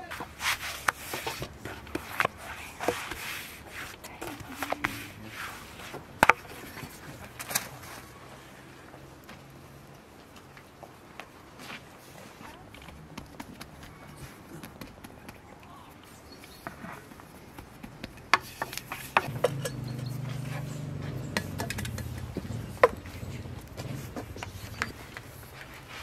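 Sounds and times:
bowl and utensils clinking: 19.0s - 25.2s.

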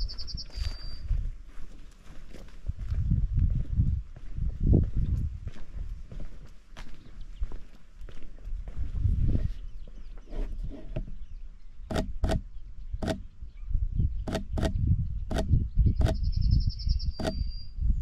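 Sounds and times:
songbird trill: 0.0s - 1.2s, 9.4s - 18.0s
wind buffeting microphone: 0.0s - 18.0s
sharp clicks: 11.9s - 13.3s, 14.3s - 16.2s, 17.2s - 17.4s.

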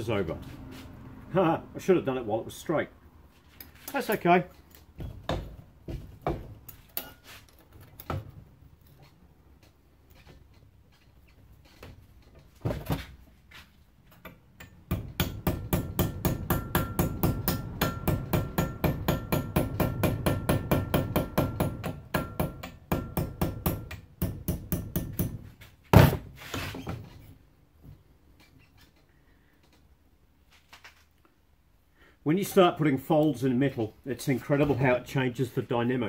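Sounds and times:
hammer tapping sheet steel: 14.2s - 25.5s.

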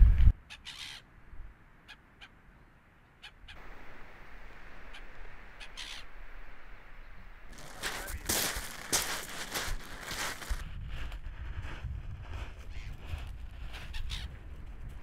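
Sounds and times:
soft hiss: 3.6s - 10.6s.

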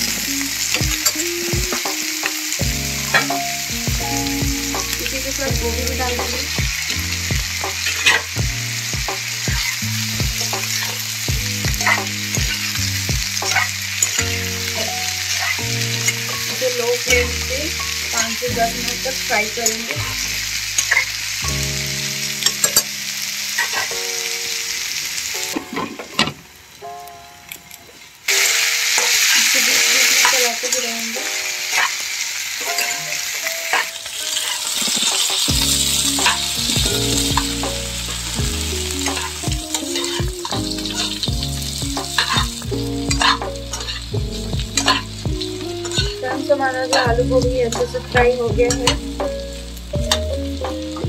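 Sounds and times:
vegetables sizzling in oil: 0.0s - 51.0s
metal spatula scraping pan: 44.8s - 45.2s.

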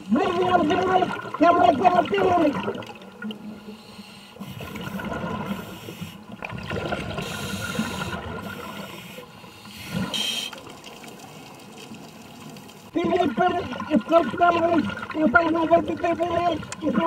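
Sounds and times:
exhaust bubbling underwater: 0.0s - 3.4s, 4.6s - 9.0s, 12.9s - 17.0s
scuba regulator breathing: 3.5s - 6.3s, 7.2s - 10.6s.

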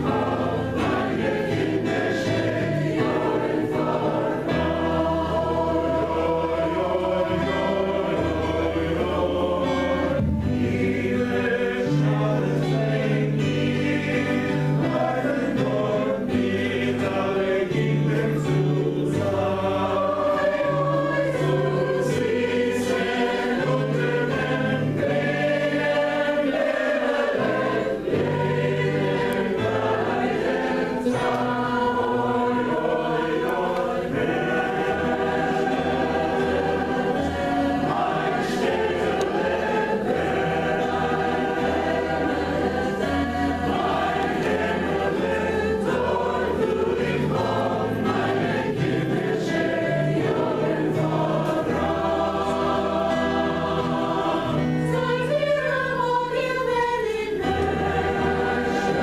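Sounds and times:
choir singing in harmony: 0.0s - 59.0s.

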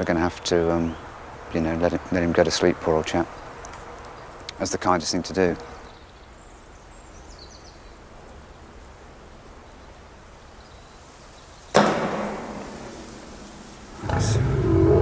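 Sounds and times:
faint outdoor ambience: 0.0s - 15.0s
loud rushing whoosh: 11.8s - 15.0s.

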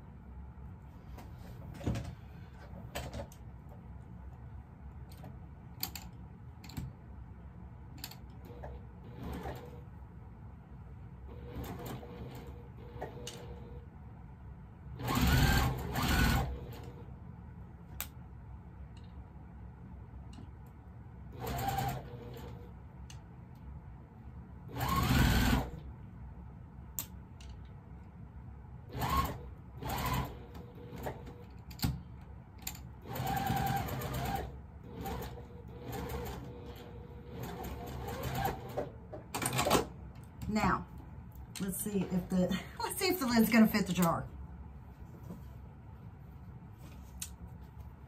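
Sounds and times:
sewing machine stitching: 8.5s - 9.8s, 11.3s - 13.7s, 15.0s - 17.0s, 21.3s - 22.6s, 24.7s - 25.8s, 28.9s - 31.4s, 33.0s - 39.9s.

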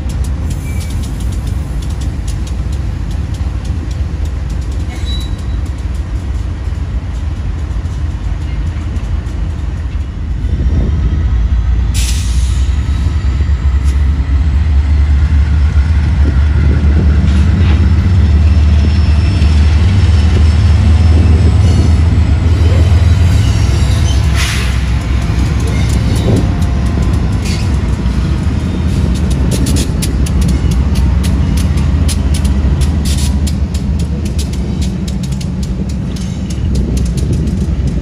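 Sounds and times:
train rumbling past: 0.0s - 38.0s
faint wheel squeal: 4.9s - 5.6s.

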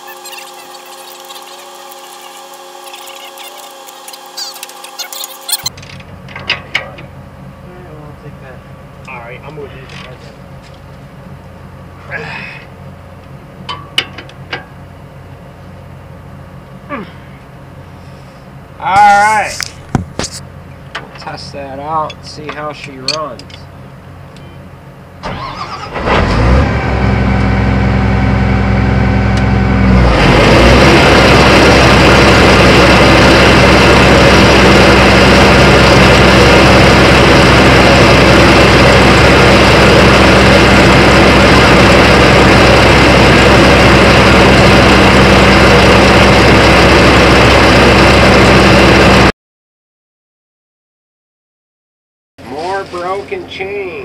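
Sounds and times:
loud steady machine noise: 0.0s - 5.8s, 25.2s - 49.3s
combine harvester engine: 0.0s - 49.3s.

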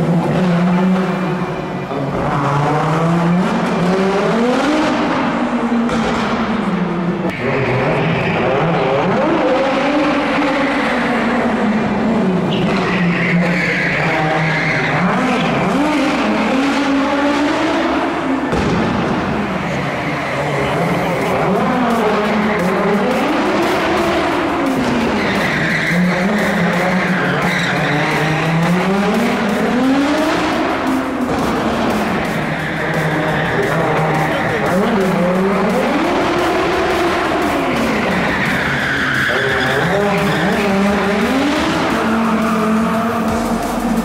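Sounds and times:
rally car engine revving: 0.0s - 44.0s
tyres squealing: 19.7s - 31.3s, 31.9s - 42.6s.

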